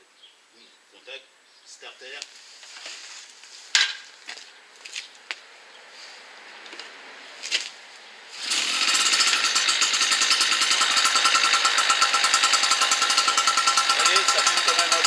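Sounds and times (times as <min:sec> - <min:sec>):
generator engine buzzing: 0:08.4 - 0:15.0.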